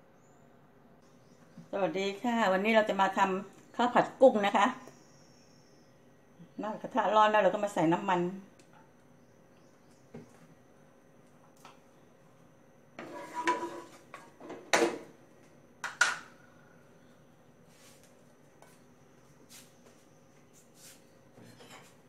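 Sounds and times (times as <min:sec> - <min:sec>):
kitchenware clattering: 0:13.0 - 0:15.1.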